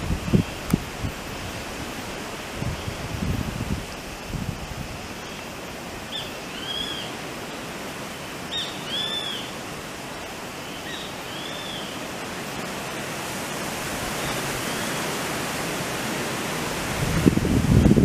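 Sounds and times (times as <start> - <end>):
rough surf: 0.0 - 18.0
wind: 0.0 - 18.0
buzzard calling: 6.1 - 7.2, 8.5 - 9.6.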